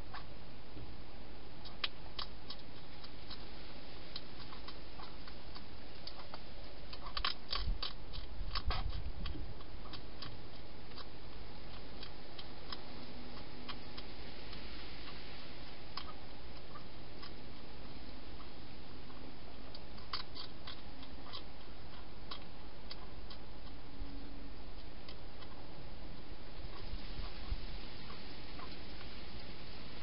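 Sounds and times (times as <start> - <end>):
steady hiss: 0.0 - 30.0
hedgehog crunching dry food: 1.6 - 30.0.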